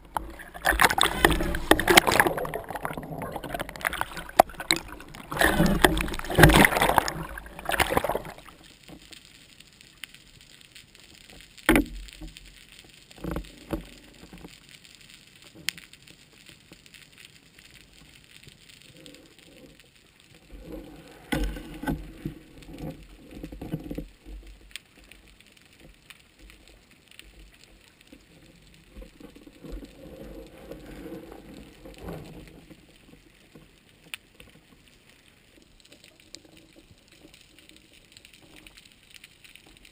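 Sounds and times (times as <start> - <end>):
water splashing: 0.0 - 9.1.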